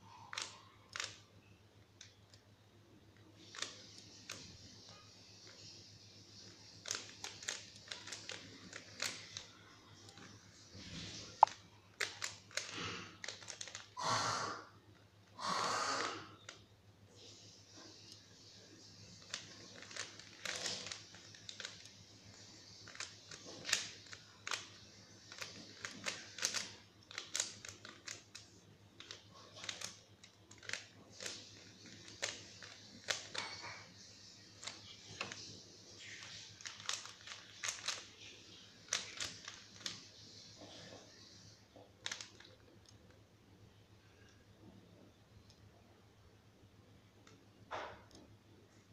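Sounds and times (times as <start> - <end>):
puzzle cube clicking: 0.2 - 1.2, 6.4 - 9.5, 11.3 - 14.0, 19.2 - 21.9, 22.8 - 33.4, 34.6 - 40.1.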